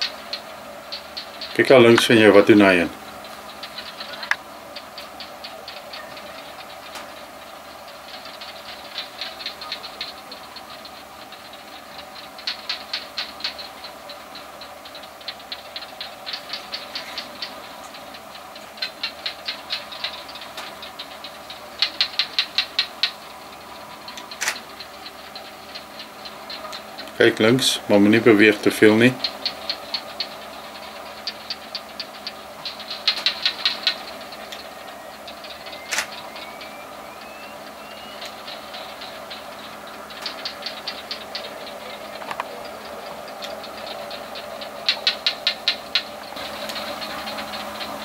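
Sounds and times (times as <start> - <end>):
fast high clicking calls: 0.0 - 48.0
steady low hum: 0.0 - 48.0.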